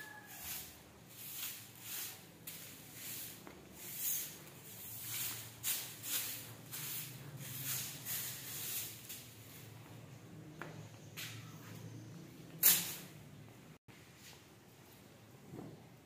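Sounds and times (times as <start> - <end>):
broom sweeping a stone floor: 0.0 - 9.9, 12.6 - 13.2.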